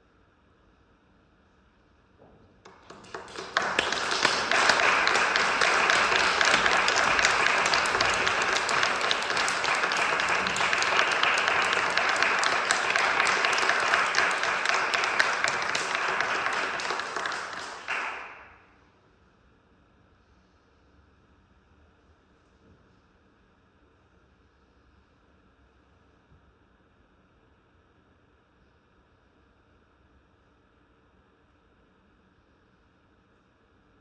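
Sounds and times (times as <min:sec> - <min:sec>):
audience applauding: 0:02.7 - 0:18.5.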